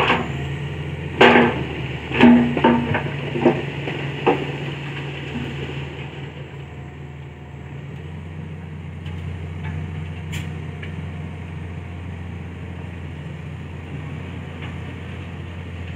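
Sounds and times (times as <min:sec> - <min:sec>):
diesel truck engine running: 0:00.0 - 0:15.9.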